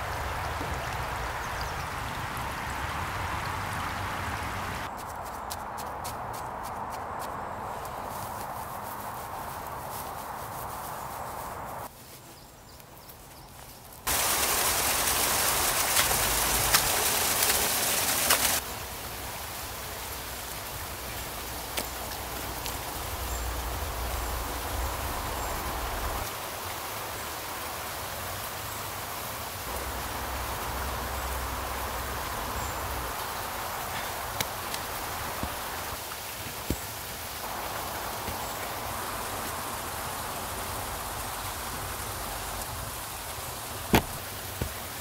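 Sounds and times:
steady outdoor hiss: 0.0s - 45.0s
hands digging in soil and clay: 5.0s - 14.3s
loud even hiss: 14.1s - 18.7s
sharp knocks: 43.9s - 44.7s.

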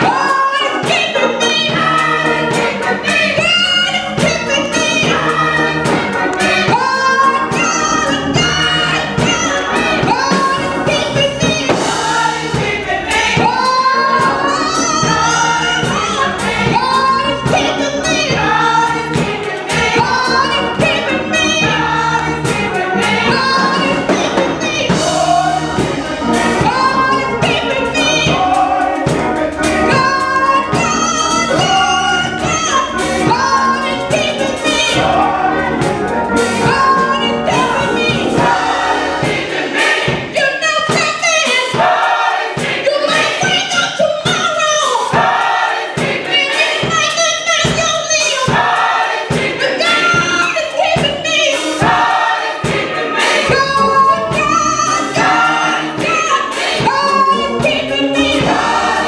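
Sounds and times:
gospel choir singing: 0.0s - 59.0s
low instrumental backing: 0.9s - 40.4s, 51.1s - 59.0s.

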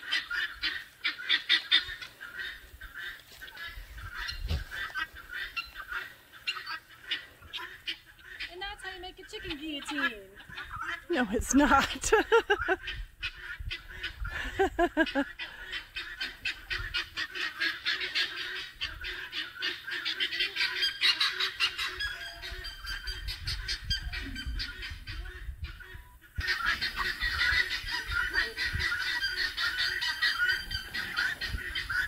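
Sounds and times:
chicken squawks: 0.0s - 8.5s, 12.4s - 32.0s
chickens clucking: 0.0s - 32.0s.

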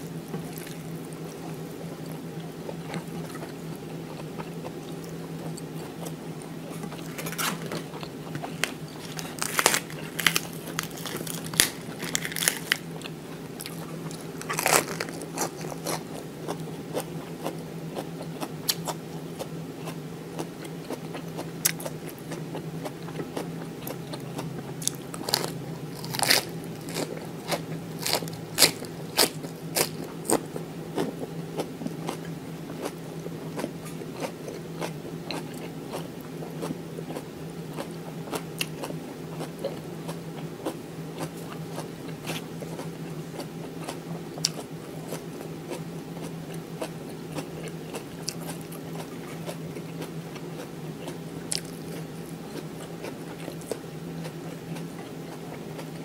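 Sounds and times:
lettuce crunching and chewing: 0.0s - 56.0s
steady low hum: 0.0s - 56.0s
leaf tearing: 8.6s - 12.9s, 14.3s - 15.9s, 25.2s - 27.1s.

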